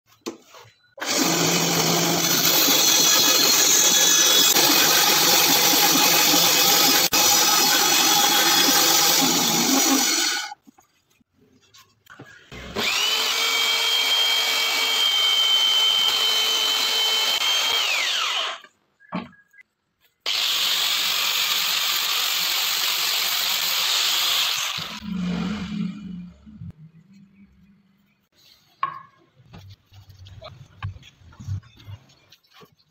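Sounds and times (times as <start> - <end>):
rotary sander running: 1.0 - 10.5, 12.7 - 18.6, 20.3 - 25.7
bandsaw cutting wood: 1.0 - 10.6, 12.5 - 18.7, 20.2 - 26.0
belt sander whining: 12.5 - 18.7.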